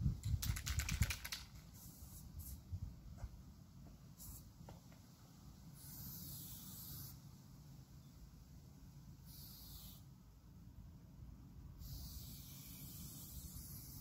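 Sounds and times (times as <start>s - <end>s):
spray-paint can hissing: 1.7s - 2.6s, 4.2s - 4.5s, 5.8s - 7.2s, 9.3s - 10.0s, 11.8s - 14.0s.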